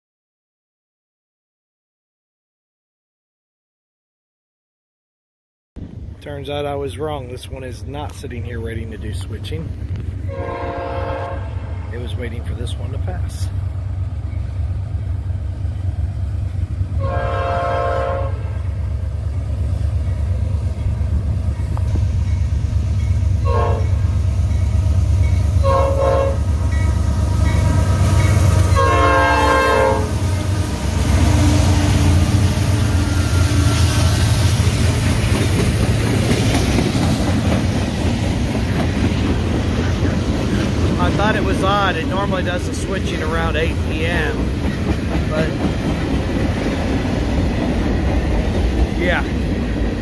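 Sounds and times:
train rumbling: 5.8 - 50.0
train air horn blasts: 10.3 - 11.8, 17.0 - 18.6, 23.4 - 24.1, 25.6 - 26.5, 28.3 - 30.4
train wheel clatter: 34.5 - 50.0.

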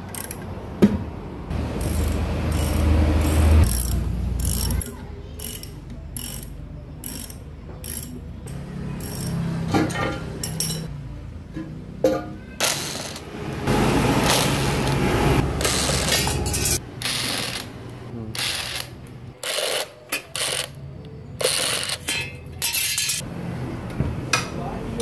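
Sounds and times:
impact wrench bursts: 1.6 - 8.1, 9.0 - 9.4, 15.6 - 17.8, 18.4 - 20.8, 21.4 - 22.1
metal clanks of tools: 9.0 - 10.9, 15.6 - 16.8, 21.5 - 23.2.

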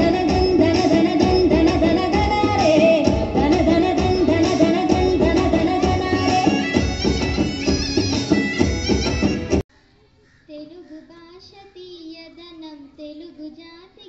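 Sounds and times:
girl singing into microphone: 0.0 - 6.9
loud music: 0.0 - 9.6.

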